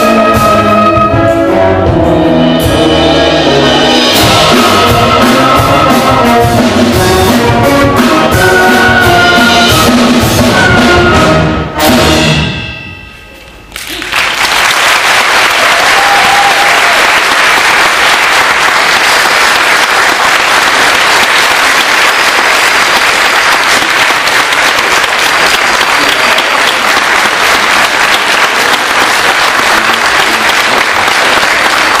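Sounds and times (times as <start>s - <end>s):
audience applauding: 13.8s - 32.0s.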